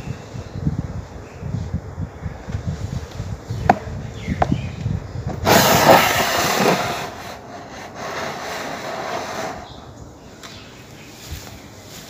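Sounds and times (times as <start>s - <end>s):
cloth scrubbing floor tiles: 5.5s - 9.7s.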